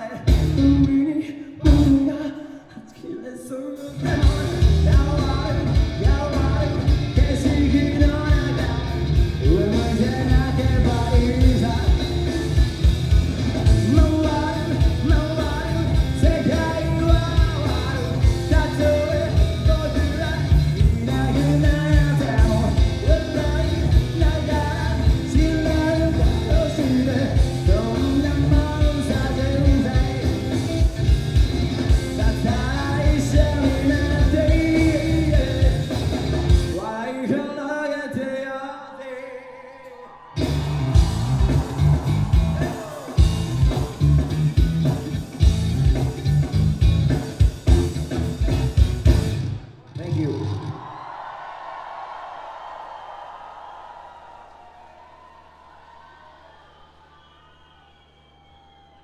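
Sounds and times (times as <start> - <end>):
live rock band: 0.0 - 2.2, 3.7 - 37.0, 40.2 - 49.8
man singing: 0.0 - 12.6, 13.6 - 31.1, 31.8 - 40.2.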